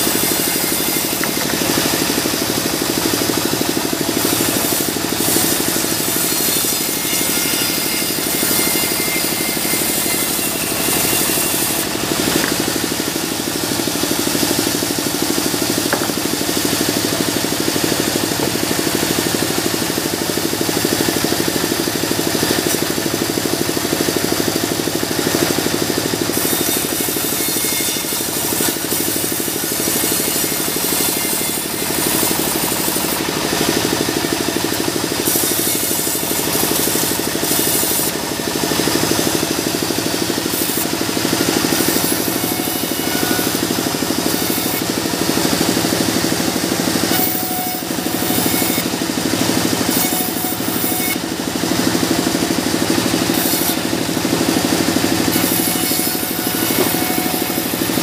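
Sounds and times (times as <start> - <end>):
band saw cutting logs: 0.0 - 58.0
sawmill hum: 0.0 - 58.0.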